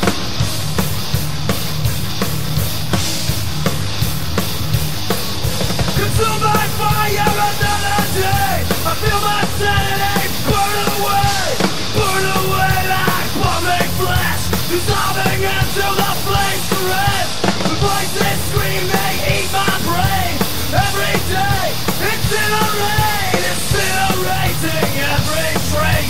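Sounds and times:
bass guitar: 0.0 - 26.0
distorted electric guitar: 0.0 - 26.0
drum kit: 0.0 - 26.0.

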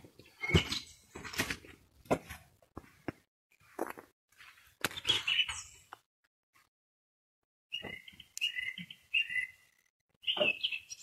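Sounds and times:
nightingale singing: 4.9 - 5.9, 7.7 - 11.0.

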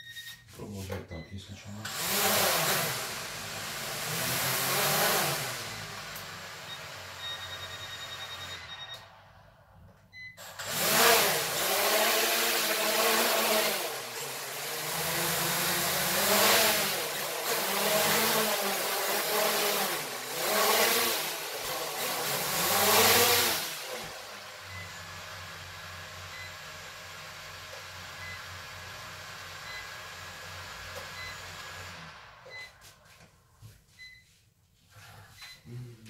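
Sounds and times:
toy drone motors whirring: 1.9 - 6.2, 10.4 - 24.1
rapid high beeping: 6.7 - 9.0.

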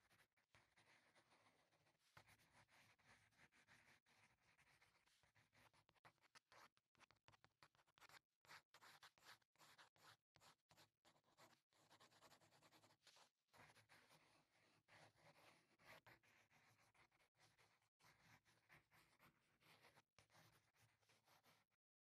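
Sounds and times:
faint scratchy coloring strokes on paper: 0.0 - 21.8.

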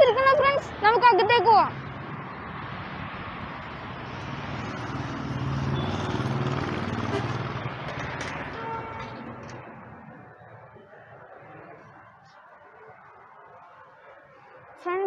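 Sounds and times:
vehicle passing: 0.4 - 12.2.

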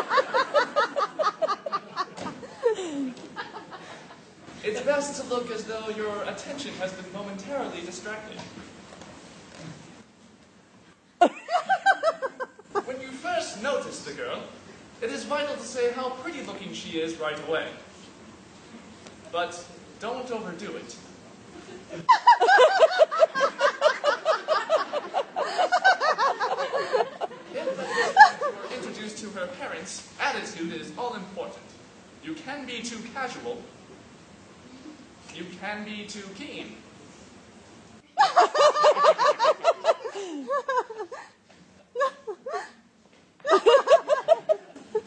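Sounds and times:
audience laughing: 0.0 - 4.2, 21.6 - 28.8, 38.2 - 41.2, 43.5 - 45.0
person laughing high-pitched: 2.5 - 3.3, 38.2 - 38.8, 39.7 - 42.8.

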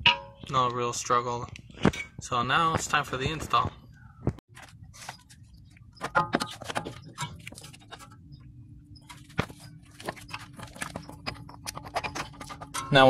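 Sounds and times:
sharp metal knocks: 0.0 - 0.6, 6.0 - 8.0, 10.2 - 13.0
metallic clicks and scrapes: 9.0 - 13.0.

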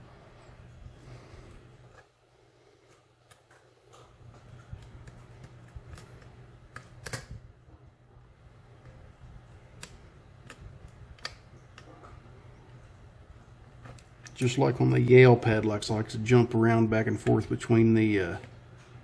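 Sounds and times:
lock pick clicking pins: 4.6 - 7.4.

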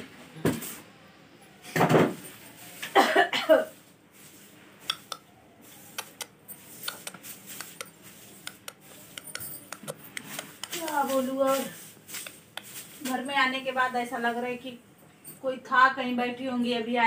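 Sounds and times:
broom sweeping a tiled floor: 0.3 - 1.0, 2.1 - 14.7
person coughing loudly: 2.9 - 3.7.

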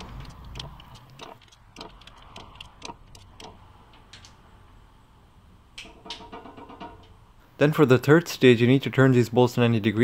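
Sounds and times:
ratchet ticks: 0.0 - 4.4
torque wrench clicking: 0.0 - 4.4.

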